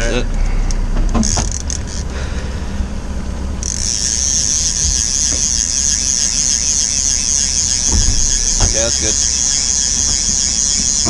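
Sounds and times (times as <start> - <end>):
low steady rumble: 0.0 - 11.0
fishing reel ratchet clicking: 1.2 - 2.1, 3.6 - 11.0.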